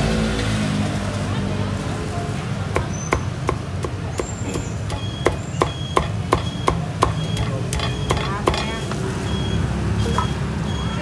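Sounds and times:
cleaver chopping on wooden block: 2.7 - 8.8.

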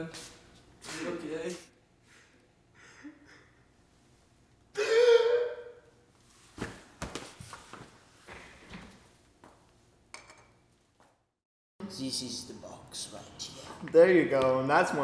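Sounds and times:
breathing sounds: 2.0 - 3.6
person crying out: 4.7 - 5.9.

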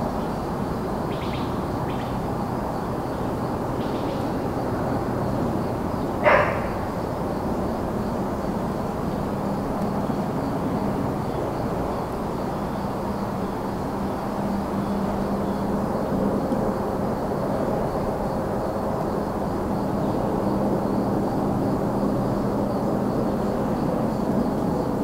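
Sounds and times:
distant highway traffic: 0.0 - 25.0
faint cricket trill: 0.0 - 25.0
dog bark: 6.2 - 6.9.

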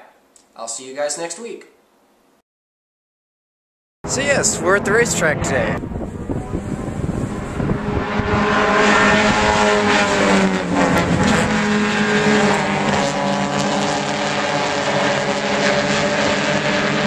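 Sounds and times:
race car engines: 4.0 - 17.0.

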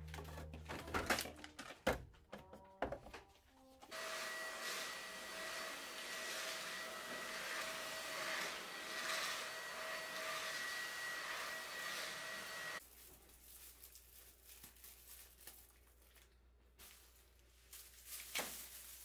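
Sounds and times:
vacuum cleaner motor whining: 3.9 - 12.8.

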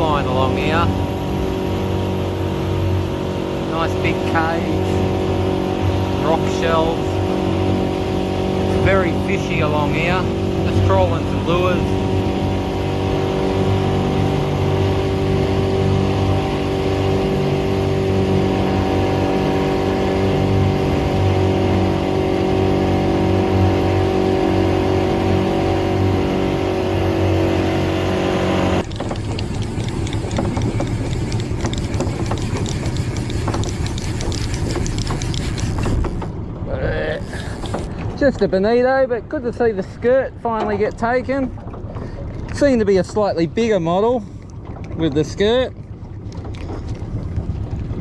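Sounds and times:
boat motor running: 0.0 - 48.0
water rushing past hull: 0.0 - 48.0
wind: 0.0 - 48.0
fine rapid clicks: 28.8 - 36.4.

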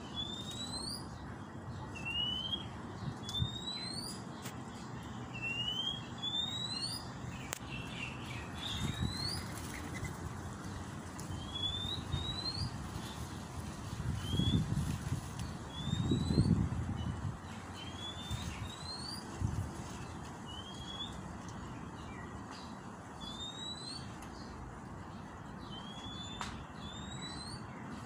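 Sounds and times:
magpie-robin whistling calls: 0.0 - 1.1, 2.0 - 4.2, 5.4 - 7.1, 8.6 - 9.5, 11.3 - 12.7, 15.7 - 16.5, 17.8 - 19.2, 23.2 - 24.1, 25.7 - 27.7.

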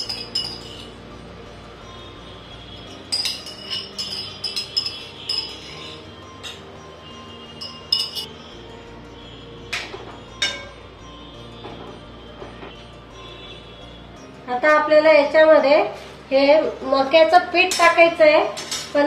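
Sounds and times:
metal ladle clinking in a pan: 10.4 - 10.7.

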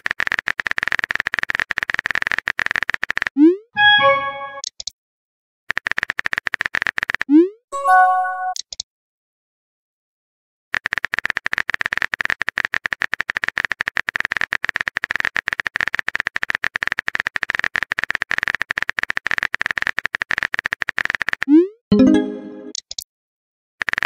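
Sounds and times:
phone keyboard typing clicks: 8.5 - 8.8.

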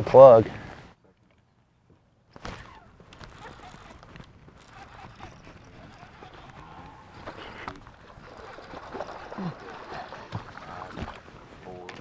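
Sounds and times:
camera handling rustle and knocks: 2.3 - 8.9.

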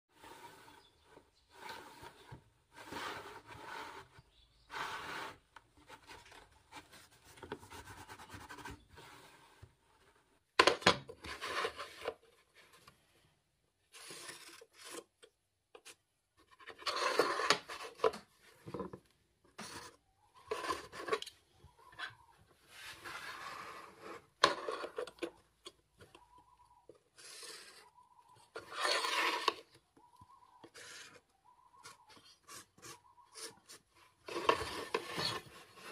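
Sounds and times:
ruler sliding on carpet: 1.5 - 5.4.

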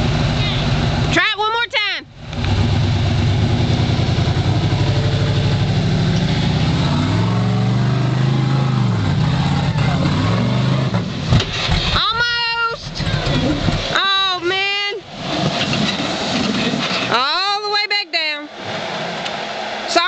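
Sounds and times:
engine on rev limiter: 2.2 - 11.3.

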